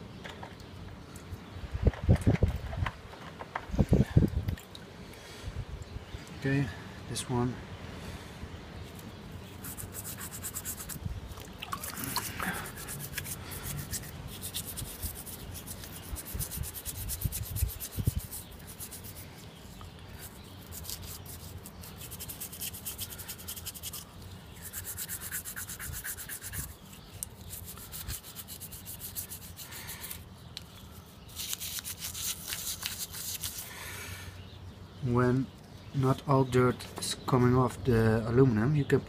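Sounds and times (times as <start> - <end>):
toothbrush scrubbing metal cap: 12.0 - 19.2, 24.6 - 29.7.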